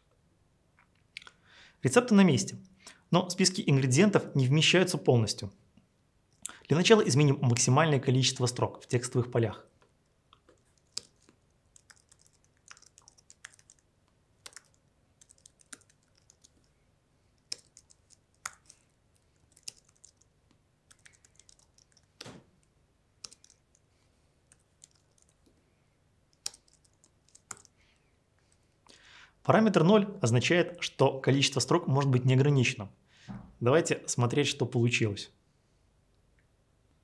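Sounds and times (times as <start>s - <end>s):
typing on computer keyboard: 10.5s - 16.7s, 17.4s - 20.3s, 20.9s - 22.3s, 23.2s - 23.8s, 24.5s - 25.5s, 26.3s - 27.8s.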